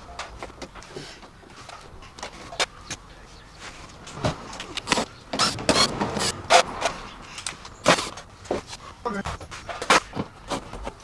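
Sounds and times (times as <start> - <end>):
sharp knocks and clatters: 3.9 - 11.0.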